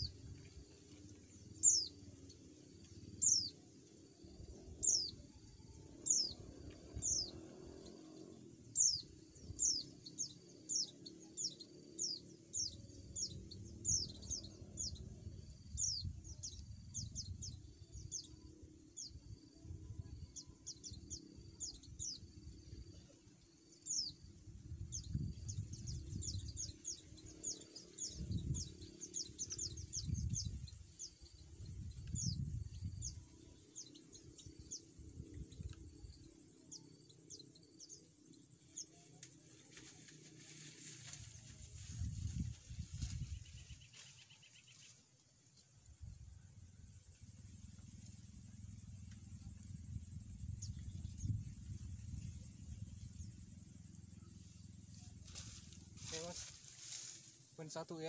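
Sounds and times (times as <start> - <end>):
bird chirping: 4.4 - 39.2.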